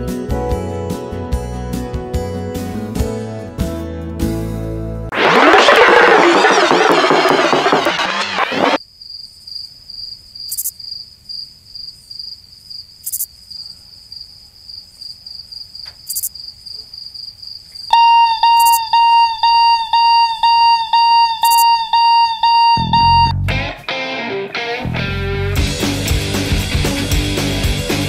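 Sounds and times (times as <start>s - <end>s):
high fast-pulsing trill: 5.1s - 8.8s
alarm clock beeping: 5.2s - 8.8s, 17.9s - 23.4s.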